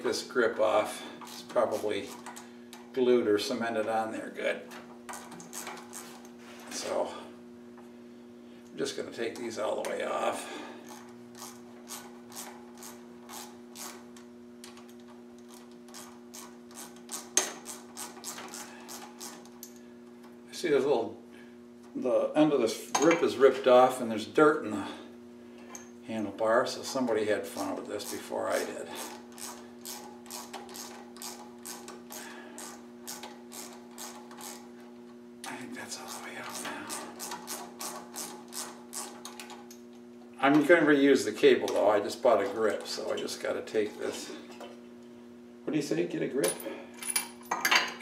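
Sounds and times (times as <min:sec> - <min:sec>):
steady electrical hum: 0:00.0 - 0:48.0.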